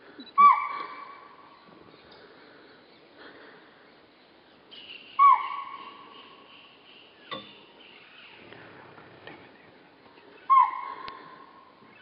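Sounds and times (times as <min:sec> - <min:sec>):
deer alarm call: 0:00.4 - 0:01.2, 0:05.2 - 0:06.0, 0:10.5 - 0:11.3.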